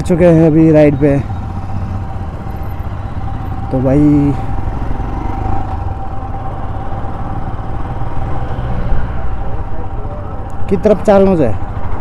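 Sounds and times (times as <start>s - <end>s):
motorcycle low rumble: 0.0s - 12.0s.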